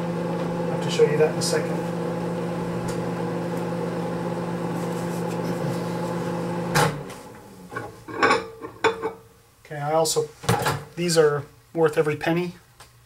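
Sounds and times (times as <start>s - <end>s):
microwave oven humming: 0.0s - 9.2s.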